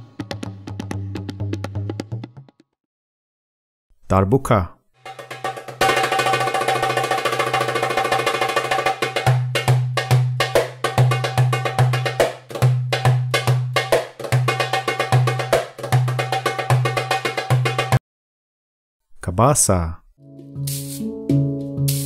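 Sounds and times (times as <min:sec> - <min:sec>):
goblet drum played by hand: 0:00.0 - 0:02.6, 0:05.0 - 0:18.0.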